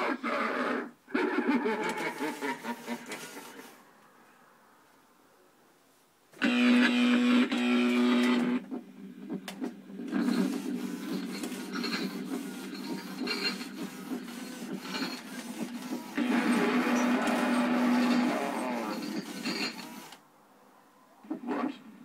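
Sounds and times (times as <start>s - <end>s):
gear motors whirring and clicking: 9.4s - 20.2s.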